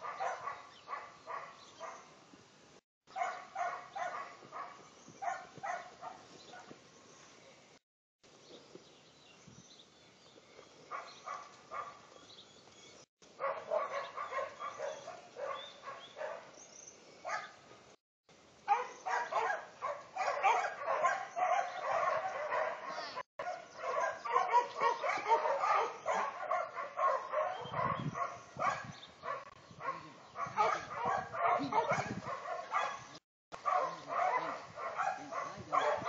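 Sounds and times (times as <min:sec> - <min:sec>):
dog barking: 0:00.0 - 0:02.1, 0:03.1 - 0:06.7, 0:10.9 - 0:12.0, 0:13.4 - 0:16.5, 0:17.3 - 0:17.6, 0:18.7 - 0:36.0.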